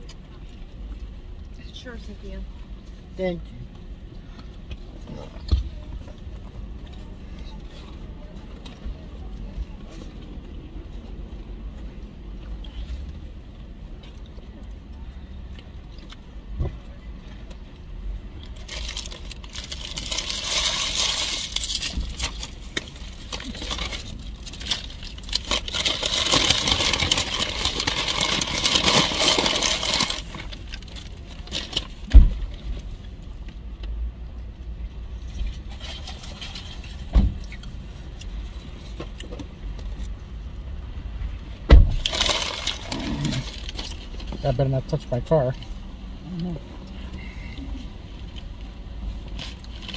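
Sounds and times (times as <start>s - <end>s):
paper bag rustling: 18.6s - 32.0s, 42.0s - 44.3s.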